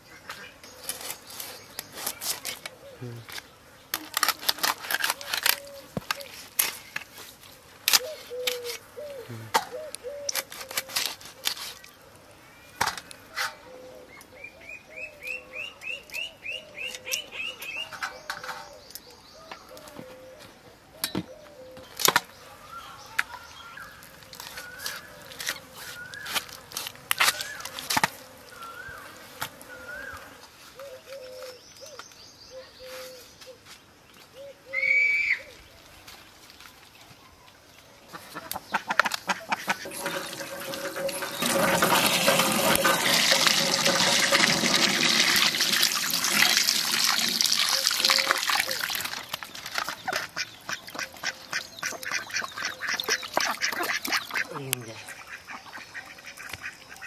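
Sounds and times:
bird whistles: 0:34.7 - 0:35.5
ducks quacking: 0:38.1 - 0:44.8, 0:49.8 - 0:57.0
water splashing in steel bowl: 0:39.5 - 0:54.5.

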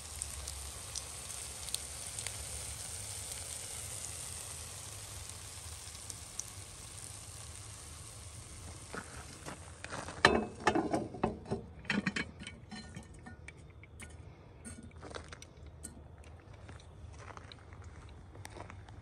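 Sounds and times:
metal clanks of pot and lid: 0:10.2 - 0:14.1.

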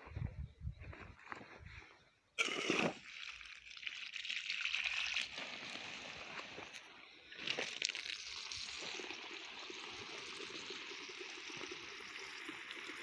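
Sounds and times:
garden hose water splashing: 0:02.4 - 0:13.0.

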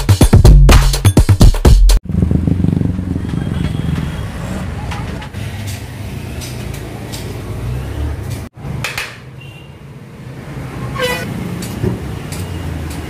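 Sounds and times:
low rumble of street noise: 0:02.0 - 0:13.0
short squeak: 0:10.9 - 0:11.4.

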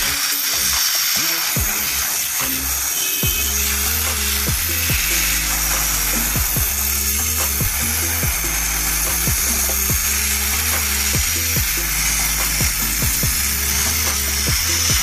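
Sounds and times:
air compressor running: 0:00.0 - 0:15.0
background music with bass line: 0:00.0 - 0:15.0.

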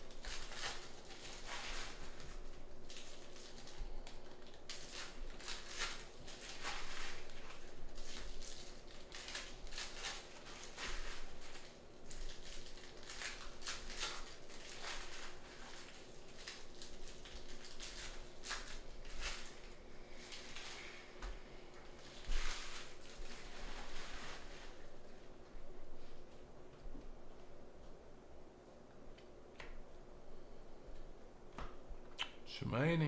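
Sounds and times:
faint steady hum: 0:00.0 - 0:33.0
card pack wrappers tearing: 0:00.1 - 0:20.8.

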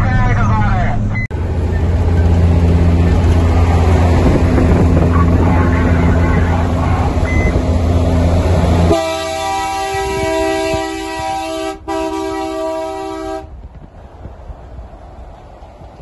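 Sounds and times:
truck diesel engine drone: 0:00.0 - 0:16.0
truck air horn chord: 0:08.9 - 0:13.5.

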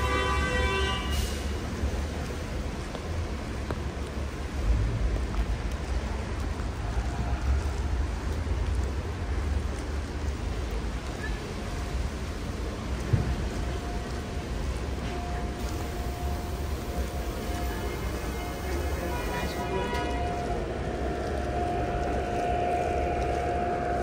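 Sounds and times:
rain on a wet street: 0:00.0 - 0:24.0
low rumble: 0:19.6 - 0:24.0.

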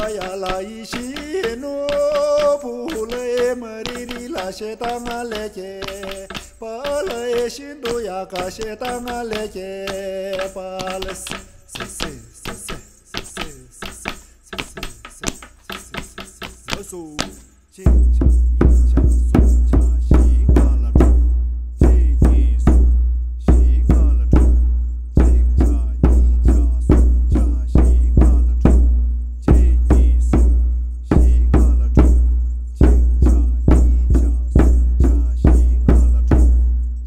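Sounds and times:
person singing: 0:00.0 - 0:18.0
quick percussive strikes: 0:00.0 - 0:37.0.

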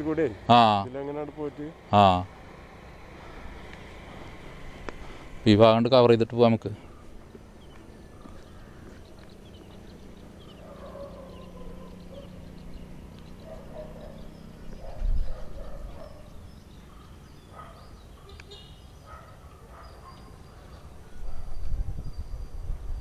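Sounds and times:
bird calls: 0:06.8 - 0:23.0.

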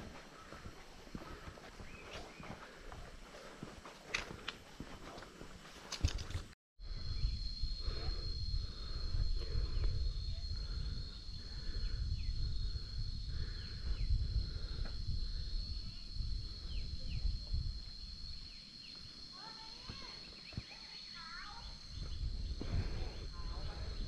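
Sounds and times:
high-pitched insects droning: 0:00.0 - 0:24.0
wind rumble on microphone: 0:06.0 - 0:18.6, 0:21.6 - 0:24.0.

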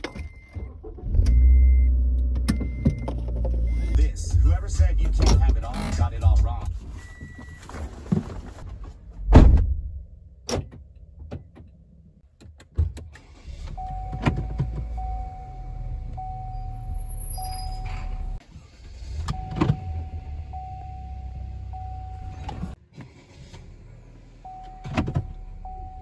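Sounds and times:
loud thump in car cabin: 0:09.3 - 0:09.8.

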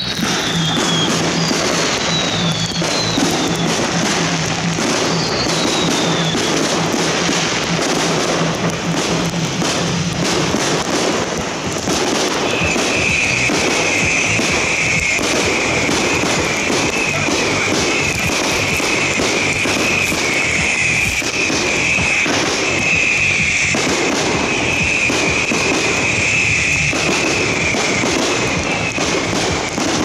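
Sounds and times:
firework shells bursting and crackling: 0:00.0 - 0:30.0
music playing: 0:00.0 - 0:30.0.

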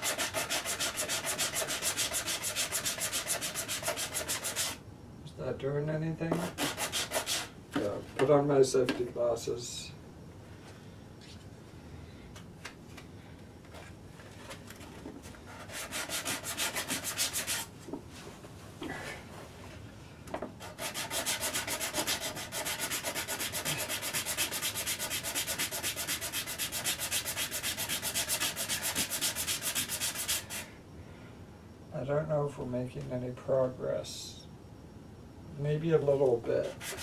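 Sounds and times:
sanding block rubbing wood: 0:00.0 - 0:04.8, 0:06.4 - 0:07.5, 0:15.6 - 0:17.7, 0:20.6 - 0:30.6, 0:36.6 - 0:37.0.

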